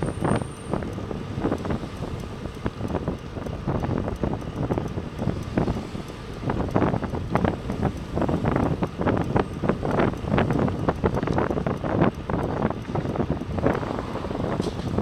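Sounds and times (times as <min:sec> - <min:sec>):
faint road and traffic noise: 0:00.0 - 0:15.0
wind buffeting microphone: 0:00.0 - 0:15.0.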